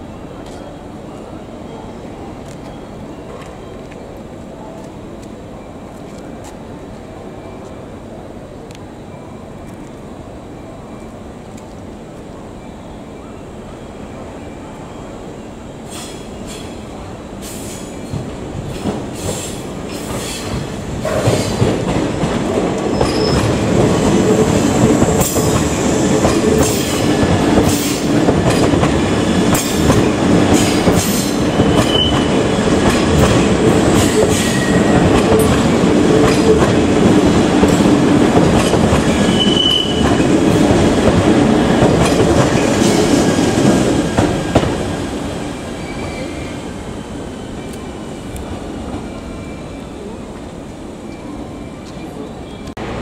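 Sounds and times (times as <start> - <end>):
electric train rumbling past: 0.0 - 53.0
high wheel squeals: 22.9 - 23.6, 31.1 - 32.4, 39.1 - 40.2, 45.6 - 47.9.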